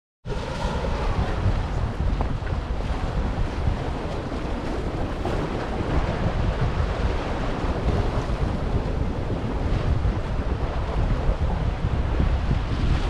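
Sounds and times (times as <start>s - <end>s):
wind buffeting microphone: 0.2s - 13.0s
waves splashing against rocks: 1.2s - 13.0s.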